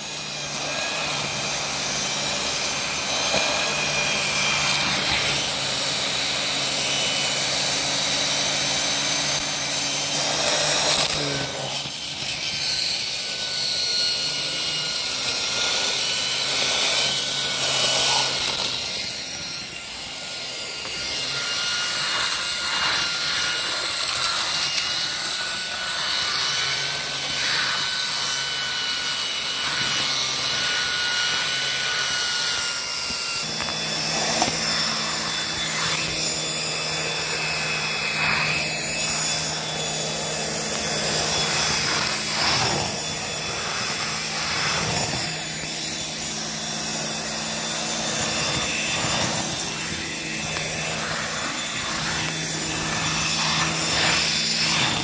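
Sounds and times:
vacuum cleaner whining: 0.0 - 55.0
floor head scraping tile: 20.7 - 55.0.

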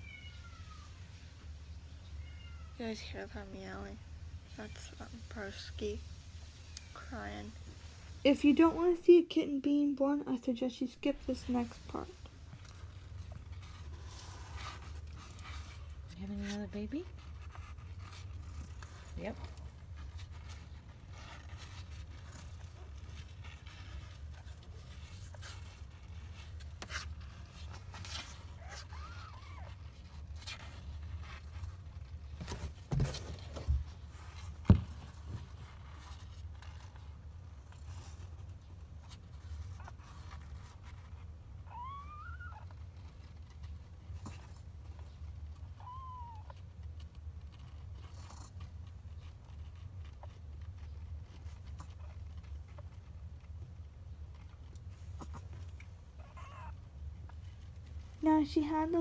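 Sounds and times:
cat meowing: 0.0 - 1.0, 2.1 - 2.8, 41.7 - 42.7, 45.7 - 46.6, 56.2 - 56.8.

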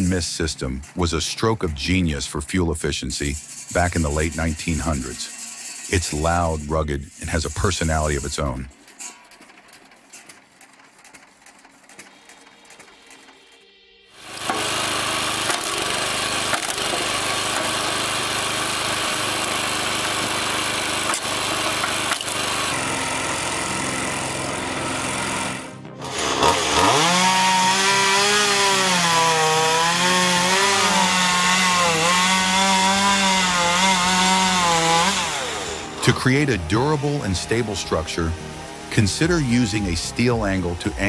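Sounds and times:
chainsaw cutting a log: 3.3 - 8.8, 14.2 - 41.0
log splitter and conveyor running: 14.2 - 41.0.

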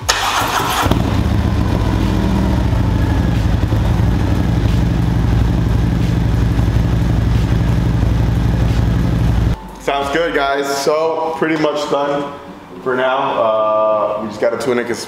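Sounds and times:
motorcycle engine idling: 0.3 - 9.6.

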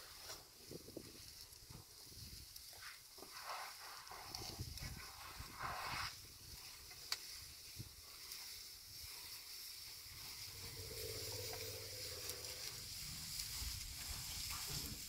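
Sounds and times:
high outdoor hiss: 0.0 - 15.0
low hum: 10.5 - 12.9.

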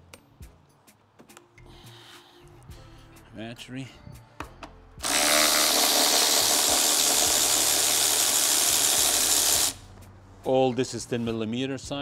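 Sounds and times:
cordless power ratchet running: 5.0 - 9.8.

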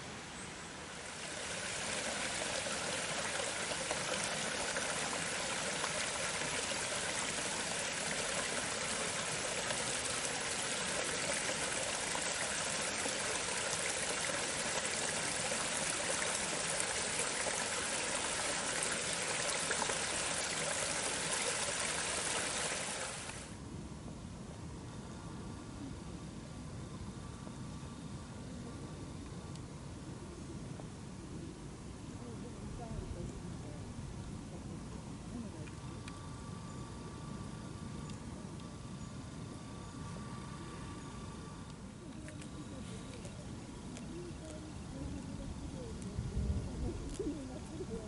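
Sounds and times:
stream running over rocks: 0.0 - 23.6.

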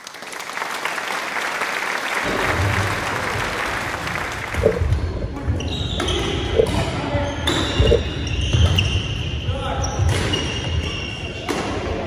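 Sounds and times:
crowd applause: 0.0 - 5.0.

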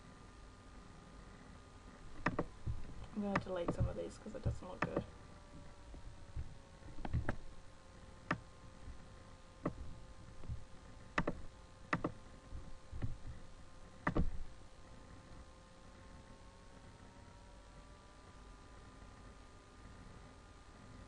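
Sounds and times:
faint steady hum: 0.0 - 21.0
computer mouse clicking: 2.2 - 5.1, 7.0 - 7.4, 11.1 - 12.2, 14.0 - 14.4.

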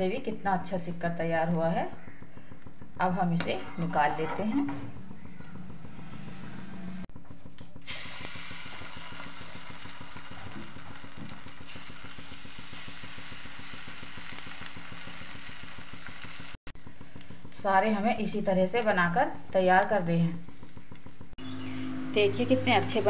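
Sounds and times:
mechanical hum with hiss: 0.0 - 23.0.

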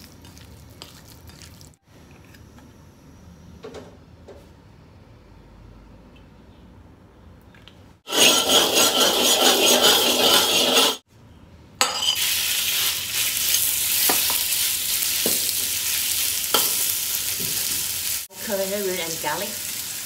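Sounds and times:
metal spatula stirring meat: 8.1 - 11.0
meat sizzling in hot oil: 12.0 - 20.0.

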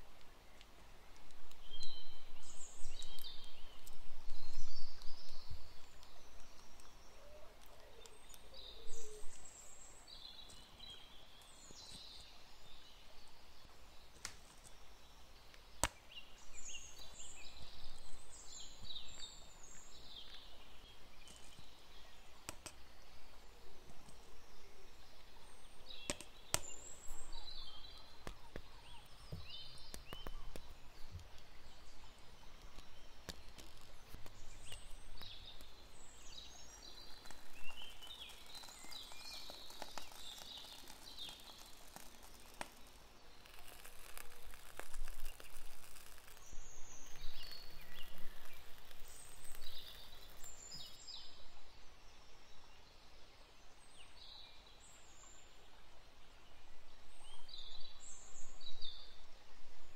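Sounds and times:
birds chirping: 1.6 - 52.6.

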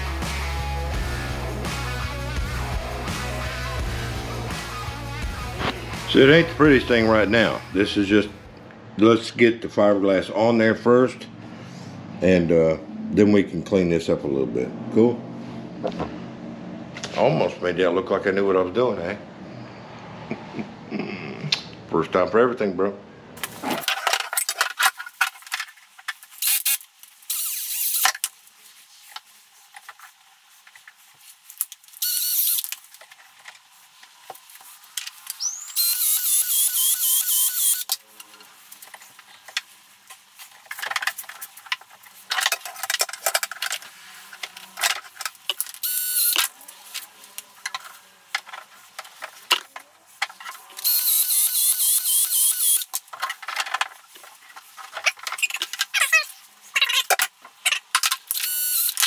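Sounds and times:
power tool motor whine: 26.4 - 28.0, 32.0 - 32.6, 35.7 - 38.0, 45.8 - 46.4, 50.8 - 52.9, 58.3 - 59.0
clicks and handling knocks: 38.8 - 45.8.

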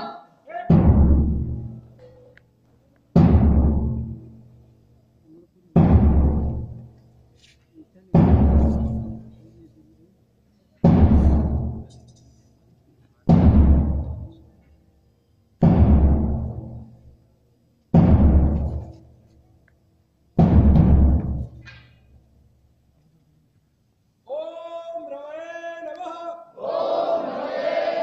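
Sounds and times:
deep drum strokes: 0.7 - 1.9, 3.2 - 4.4, 5.8 - 6.9, 8.2 - 9.4, 10.9 - 11.9, 13.3 - 14.4, 15.6 - 16.9.

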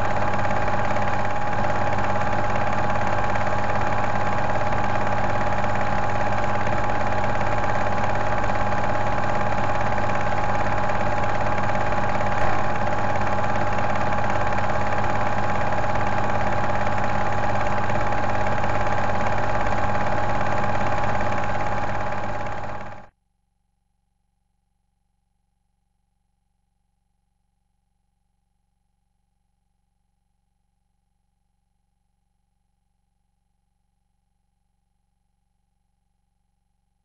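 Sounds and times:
mechanical motor hum: 0.0 - 23.1.

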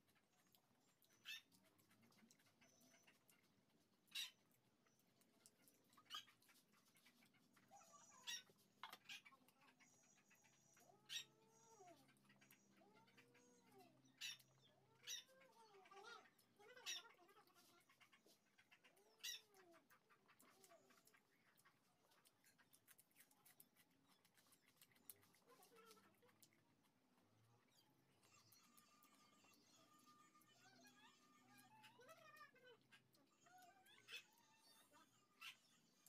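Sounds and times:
faint animal calls: 5.4 - 22.9.

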